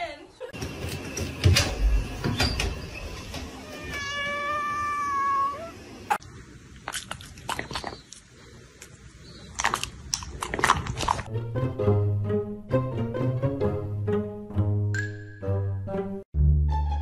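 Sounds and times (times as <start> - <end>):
cat meowing: 3.6 - 5.8.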